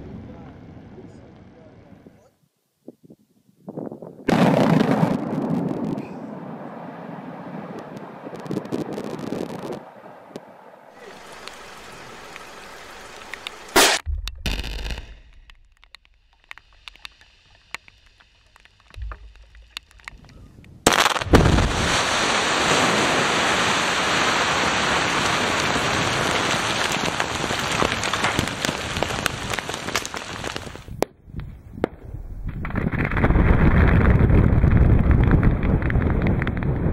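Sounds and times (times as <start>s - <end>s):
crackling of thrown rock: 13.2s - 23.5s, 25.1s - 36.9s
rock blast: 13.7s - 16.8s.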